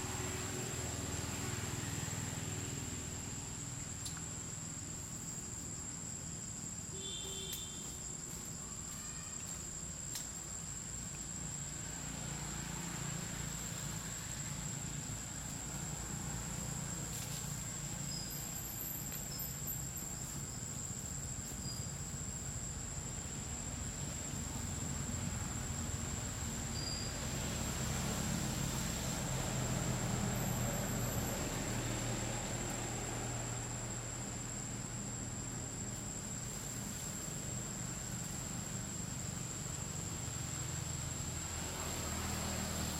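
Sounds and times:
high-pitched insect drone: 26.2 - 28.6.

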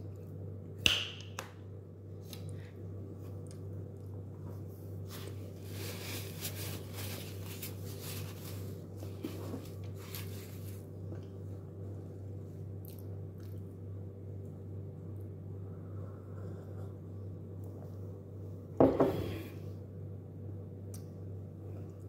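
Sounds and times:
steady low hum: 0.0 - 22.0
food squishing and rustling by hand: 2.2 - 15.4.

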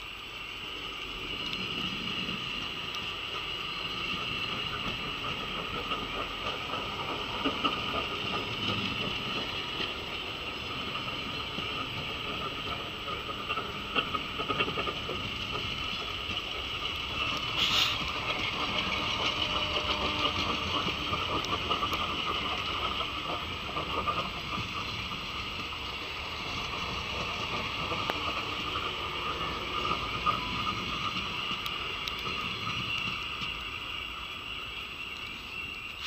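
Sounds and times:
train wheels clattering over rails: 0.1 - 36.0.

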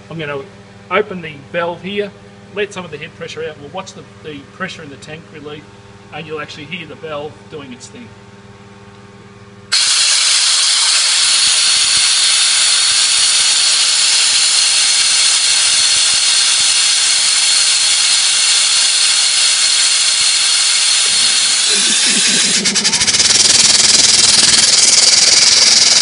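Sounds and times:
compressed air hissing: 9.7 - 26.0.

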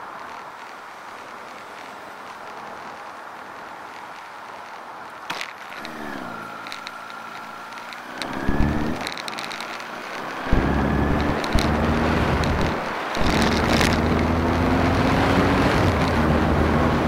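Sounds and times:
sharp clicks: 0.1 - 14.3
motorcycle engine revving: 5.3 - 17.0.

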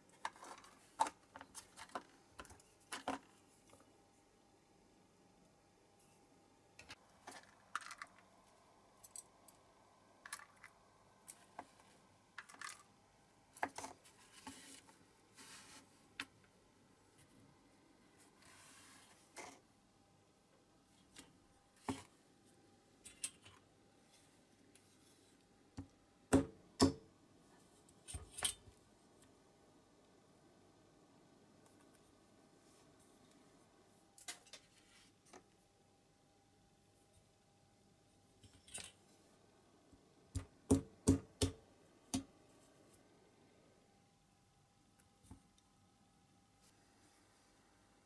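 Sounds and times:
soft rustle: 13.8 - 16.2, 18.0 - 19.6.

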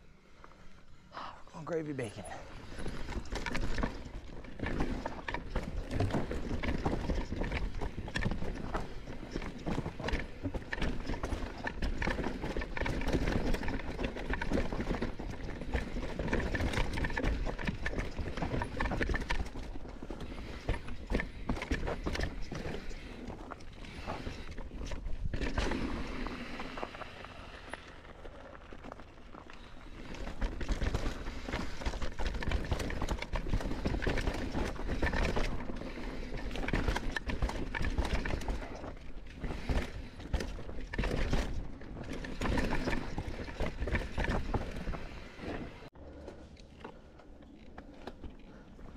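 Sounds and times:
bike tyres rattling over rocks: 2.1 - 45.9.

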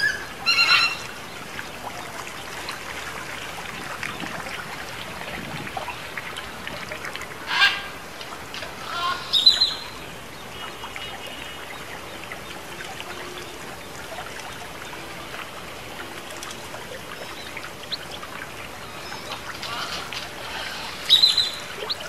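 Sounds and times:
water trickling over fountain: 0.0 - 22.0
bird call: 19.0 - 22.0.

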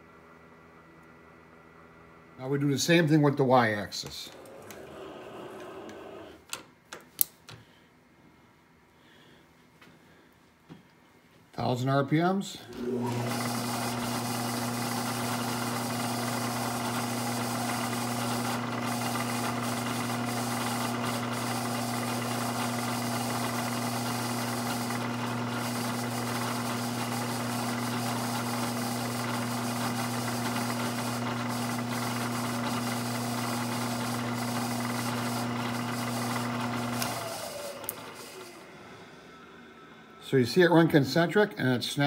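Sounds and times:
milling machine spindle running: 4.3 - 6.4, 12.7 - 39.0.

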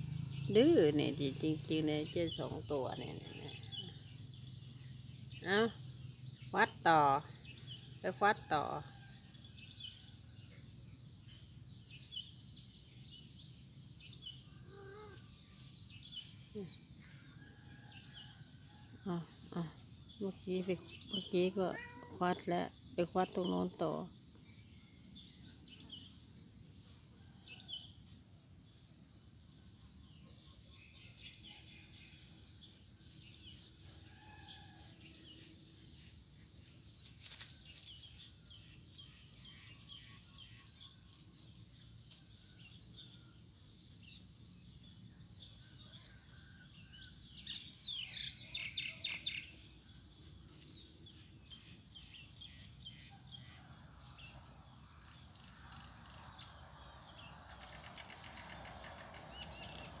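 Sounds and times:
small birds chirping: 0.0 - 60.0
cat scratching in soil and leaves: 14.6 - 17.3, 32.9 - 43.0, 50.1 - 51.6, 55.0 - 57.4.

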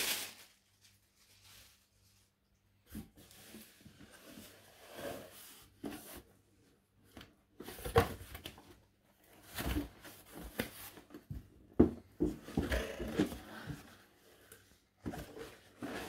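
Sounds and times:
cardboard box rustling and scraping: 3.0 - 6.4, 9.2 - 16.0.

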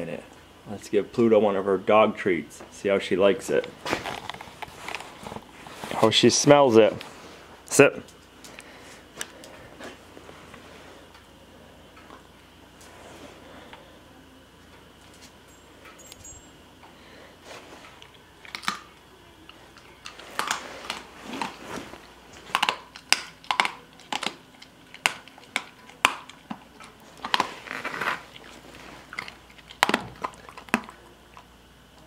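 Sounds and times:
dog crunching hard treat: 18.0 - 19.0, 19.7 - 31.5.

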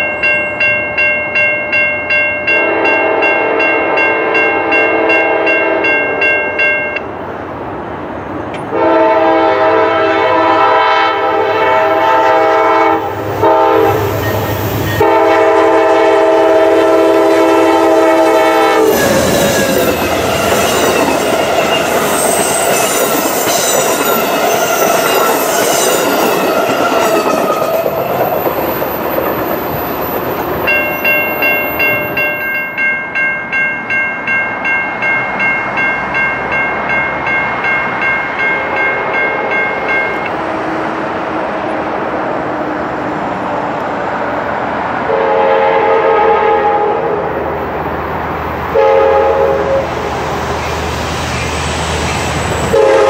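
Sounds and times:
crossing bell dinging: 0.0 - 7.1, 12.5 - 40.4
locomotive horn blowing: 2.5 - 6.6, 8.7 - 26.3, 45.1 - 47.3, 48.7 - 50.0, 52.6 - 53.0
train wheels clicking over rail joints: 18.8 - 32.2.

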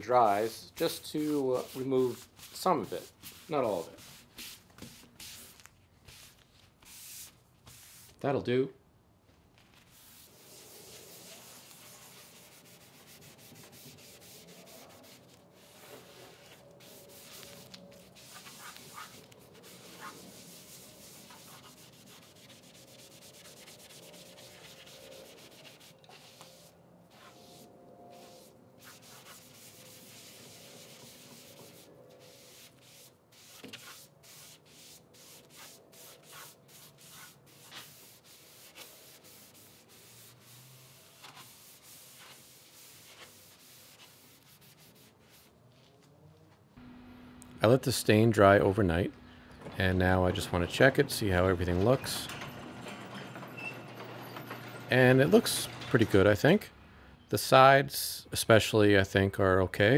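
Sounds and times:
cloth rubbing on wood: 0.8 - 8.2, 9.6 - 46.0.

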